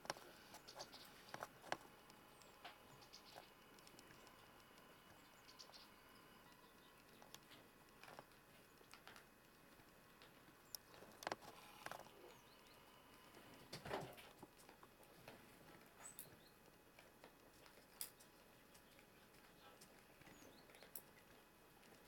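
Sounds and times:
faint clicks: 0:00.0 - 0:13.8.

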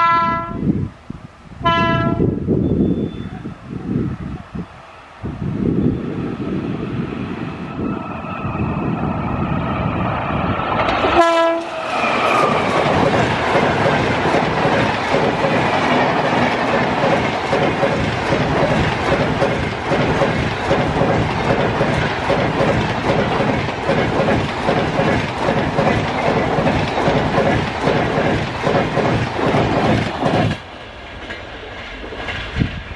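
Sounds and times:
locomotive horn: 0:00.0 - 0:00.7, 0:01.6 - 0:02.4, 0:11.0 - 0:11.8
train passing with rushing: 0:00.0 - 0:32.9.

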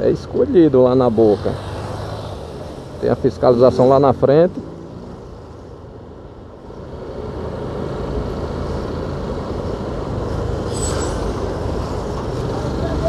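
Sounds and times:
car road and engine noise: 0:00.0 - 0:13.0
high-pitched squeak: 0:10.7 - 0:11.3.

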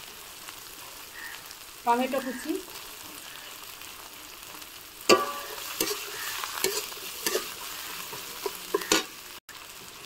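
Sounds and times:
food sizzling in oil: 0:00.0 - 0:10.0
metal spatula clanging on pan: 0:05.1 - 0:09.2.

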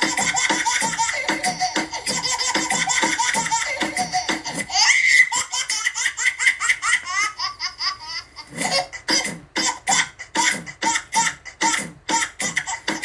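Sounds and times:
background music with beat: 0:00.0 - 0:04.8, 0:08.5 - 0:13.0.

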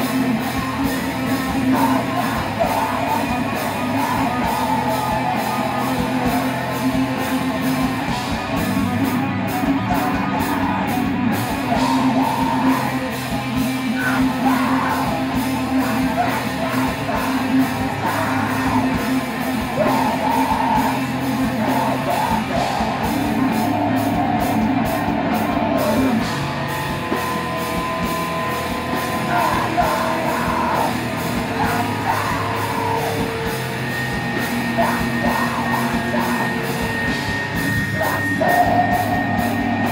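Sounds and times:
shouted vocals: 0:00.0 - 0:26.4, 0:27.8 - 0:39.9
bass guitar: 0:00.0 - 0:39.9
distorted electric guitar: 0:00.0 - 0:39.9
drums: 0:00.0 - 0:39.9.

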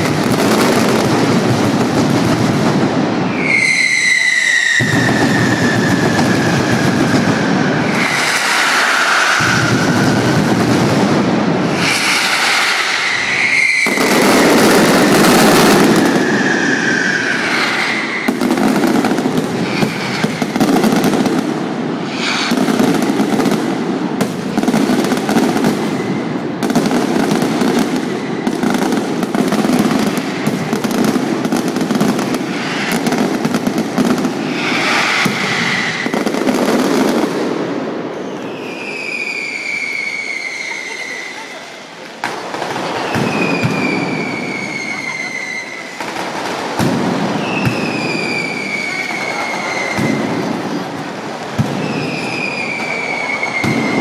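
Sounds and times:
firecrackers crackling barrage: 0:00.0 - 0:54.0
whistling fireworks: 0:00.0 - 0:54.0.

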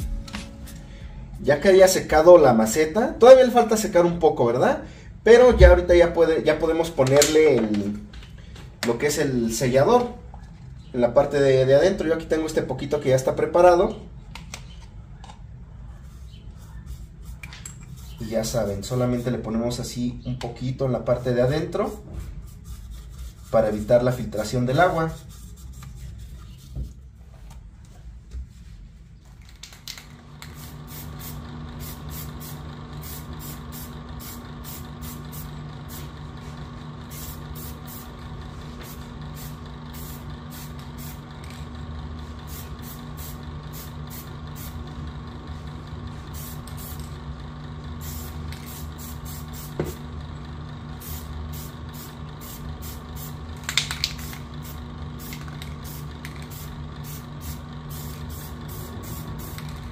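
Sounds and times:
steady low hum: 0:00.0 - 0:59.9
aerosol spray can hissing: 0:30.4 - 0:36.2, 0:37.0 - 0:41.2, 0:42.4 - 0:44.8, 0:46.3 - 0:47.2, 0:48.0 - 0:50.0, 0:51.0 - 0:59.9.

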